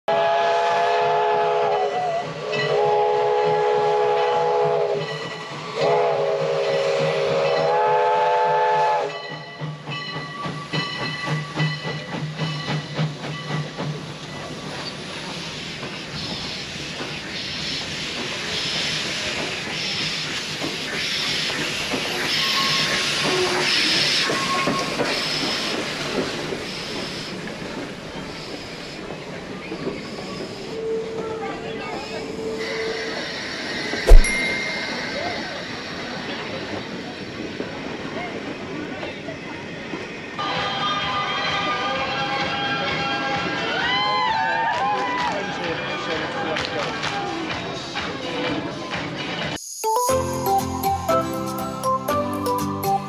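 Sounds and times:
steam locomotive chime whistle: 0.1 - 13.8, 22.2 - 25.2, 34.1 - 36.4, 49.6 - 53.0
train clicking and clanking: 1.7 - 40.8
steam hissing in bursts: 10.5 - 27.5.

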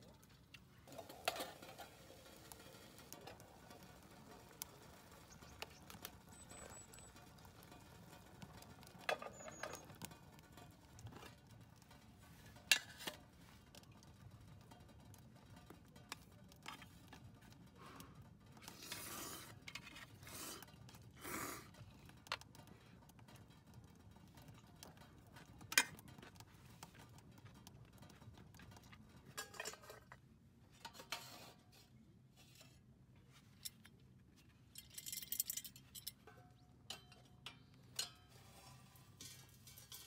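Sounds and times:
utensils clinking on metal tins: 29.3 - 30.2, 34.8 - 40.0.

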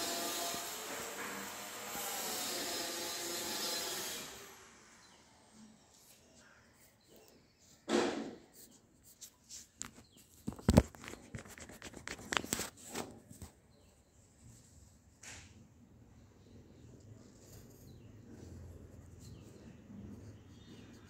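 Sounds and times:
sharp thump: 7.9 - 8.5
paper rustling: 8.6 - 13.6.

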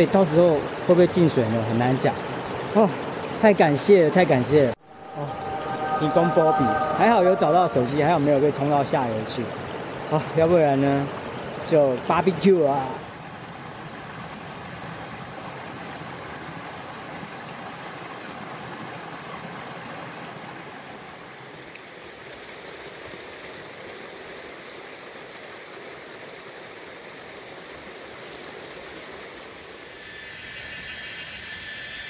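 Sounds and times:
stream rushing over boulders: 8.7 - 30.0.

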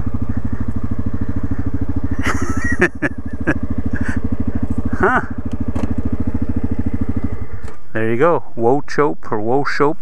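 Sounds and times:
atv engine running: 0.0 - 9.8
sharp knocks and rattles: 5.5 - 6.1.

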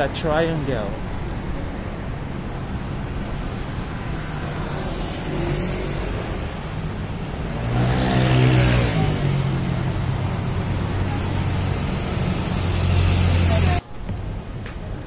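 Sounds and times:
road traffic hum: 0.0 - 15.0
vehicle passing close by: 3.7 - 13.8.

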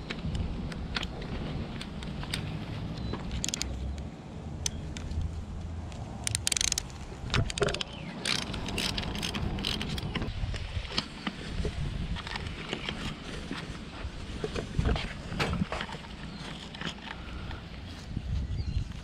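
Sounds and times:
chain rattling: 6.2 - 10.1.

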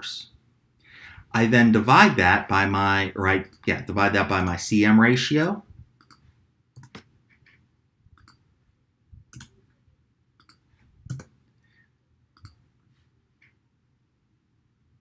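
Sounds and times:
computer mouse clicks: 6.0 - 7.6, 8.2 - 8.5, 9.3 - 9.7, 10.4 - 11.4, 12.4 - 12.6
keyboard keystrokes: 6.8 - 7.1, 10.4 - 11.3.

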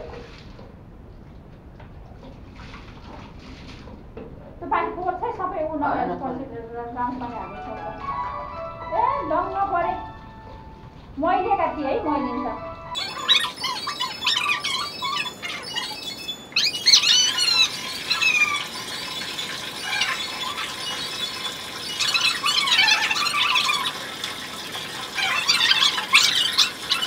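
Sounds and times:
puppy whining: 12.3 - 24.2, 24.8 - 27.0
water pouring from a jug: 17.1 - 27.0.

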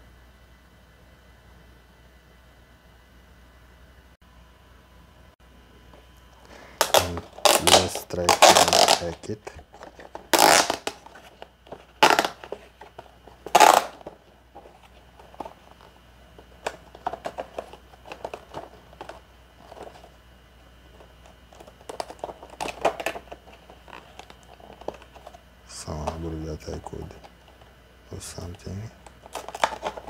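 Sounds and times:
plastic packaging crinkling: 6.5 - 20.2, 20.9 - 27.7, 28.4 - 30.0.

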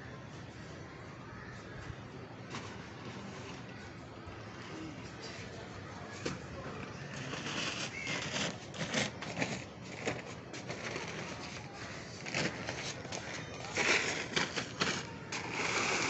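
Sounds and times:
paper sack crinkling: 6.2 - 16.0.

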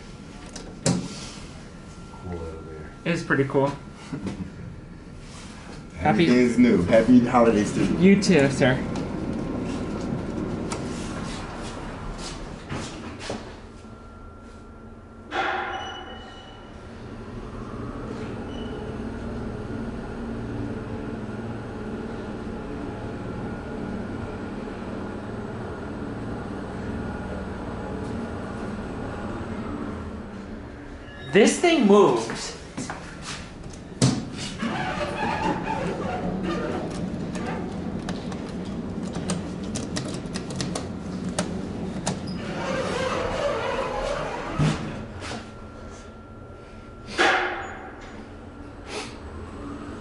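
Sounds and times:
low steady hum: 0.0 - 10.9
elevator hum and rumble: 0.0 - 50.0.

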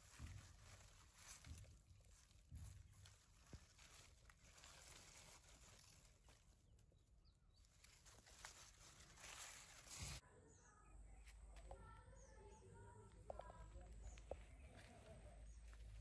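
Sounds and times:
leaves rustling: 0.0 - 10.2.

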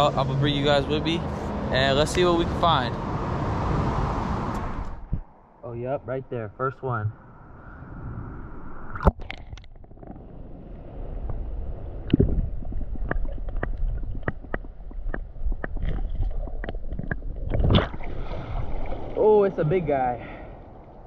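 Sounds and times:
muffled underwater rumble: 8.2 - 19.1
small underwater clicks and taps: 13.0 - 17.8.

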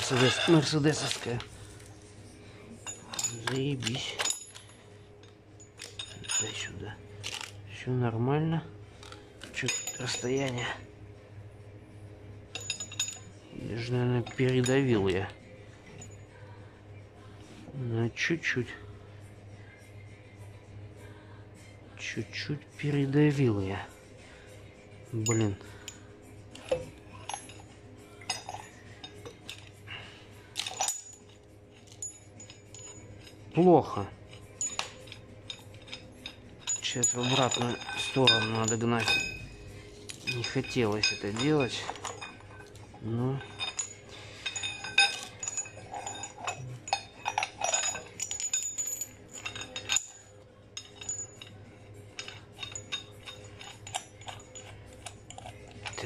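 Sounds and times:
steel tools clinking: 0.0 - 7.8, 9.0 - 10.9, 12.4 - 16.5, 25.2 - 56.0.

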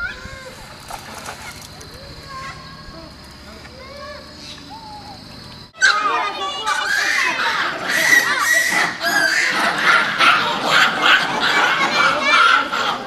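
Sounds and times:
monkeys screaming: 3.9 - 13.0.

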